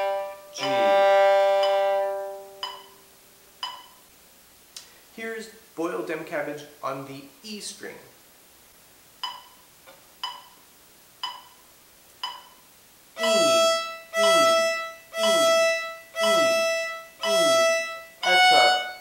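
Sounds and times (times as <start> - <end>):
violin bowing long notes: 0.0 - 2.7, 13.2 - 19.0
soft ticks: 2.6 - 3.0, 3.6 - 4.0, 9.2 - 10.6, 11.2 - 11.6, 12.2 - 12.6.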